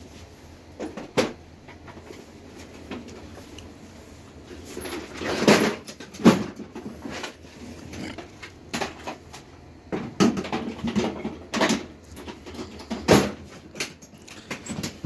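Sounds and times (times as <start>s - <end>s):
hard parts knocking and clattering: 9.9s - 15.0s.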